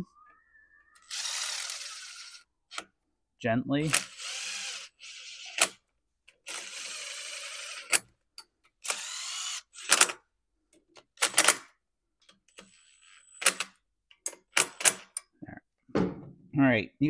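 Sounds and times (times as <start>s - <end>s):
cordless drill running bolts: 1.0s - 2.8s, 3.9s - 5.8s, 6.5s - 8.1s, 8.8s - 10.2s.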